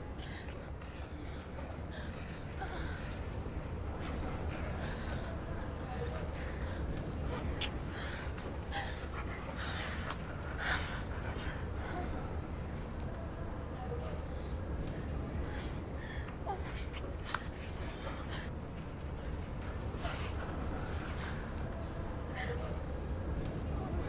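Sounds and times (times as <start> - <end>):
crickets trilling: 0.0 - 24.0.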